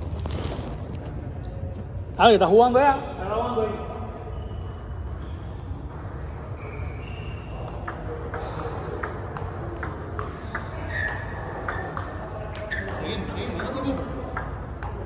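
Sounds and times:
table tennis ball clicks: 0:07.6 - 0:15.0.

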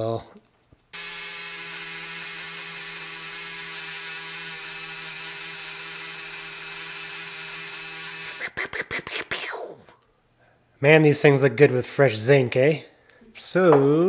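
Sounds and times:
rotary tool whining: 0:01.0 - 0:08.5.

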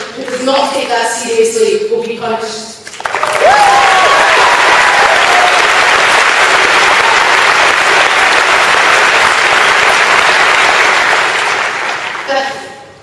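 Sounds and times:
audience applauding: 0:02.9 - 0:12.4.

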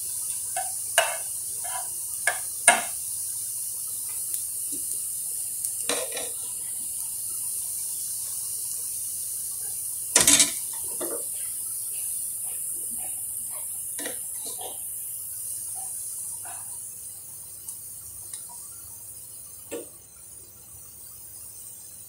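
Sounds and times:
steady high hiss: 0:00.0 - 0:22.0.

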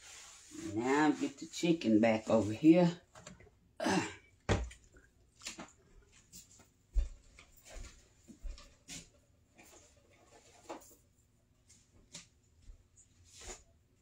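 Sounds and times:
knocks and thumps in a kitchen: 0:04.4 - 0:04.9.

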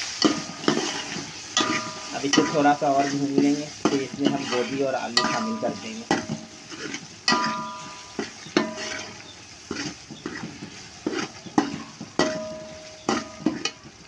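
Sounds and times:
food sizzling in oil: 0:00.0 - 0:14.0
metal spoon knocking a pot: 0:01.6 - 0:02.7, 0:05.2 - 0:06.5, 0:07.3 - 0:09.2, 0:11.5 - 0:13.9.

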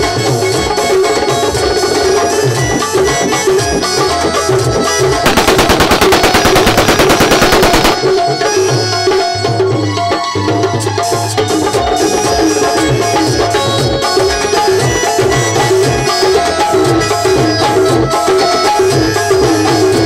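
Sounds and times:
live folk music with tabla: 0:00.0 - 0:20.0
automatic rifle fire: 0:05.3 - 0:08.0.

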